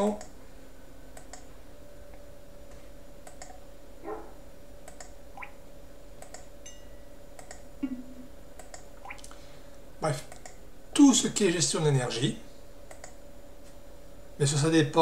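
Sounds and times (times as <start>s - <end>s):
mouse clicks: 1.2s - 1.5s, 3.2s - 3.6s, 4.9s - 5.5s, 6.2s - 6.5s, 7.4s - 7.6s, 8.6s - 9.3s, 10.3s - 10.6s, 12.9s - 13.2s
rising water drop blips: 5.4s - 5.6s.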